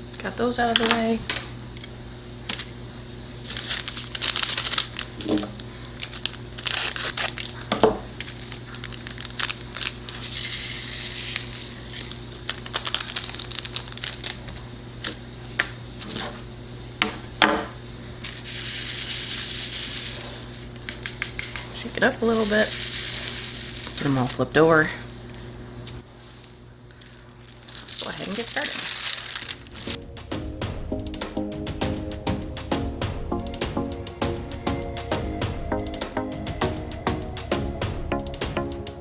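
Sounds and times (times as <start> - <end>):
plastic bag crinkling: 3.4 - 15.2, 18.2 - 30.0
tiny beads poured into plastic tray: 9.0 - 13.8, 18.2 - 20.4, 22.2 - 24.4.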